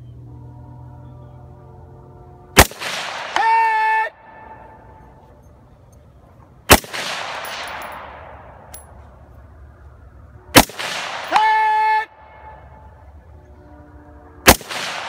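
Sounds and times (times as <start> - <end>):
rifle shots with echo: 2.6 - 3.7, 6.7 - 8.9, 10.5 - 11.6, 14.5 - 15.0.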